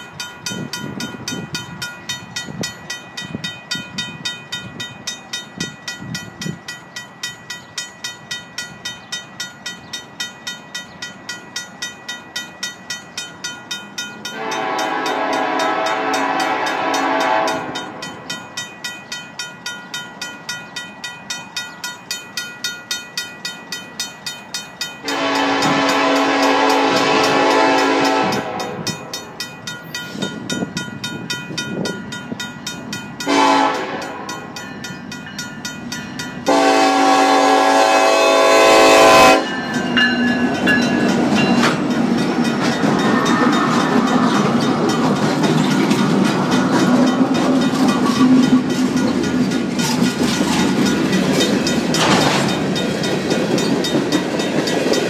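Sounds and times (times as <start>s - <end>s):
locomotive engines rumbling: 0.0s - 55.0s
train wheels on rails: 0.0s - 55.0s
locomotive horn blasts: 14.3s - 18.0s, 25.0s - 29.1s, 33.3s - 34.5s, 36.5s - 39.7s
mechanical crossing bell ringing: 34.1s - 36.5s, 39.4s - 52.0s.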